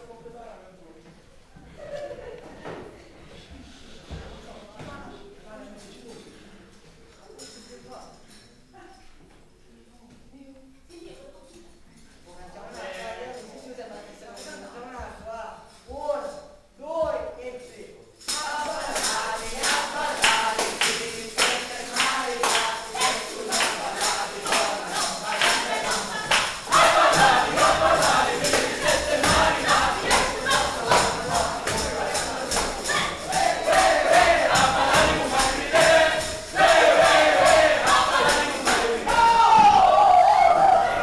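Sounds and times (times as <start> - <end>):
tambourines jingling: 18.0 - 41.0
hand-clapping: 18.3 - 39.7
group of voices singing: 18.3 - 41.0.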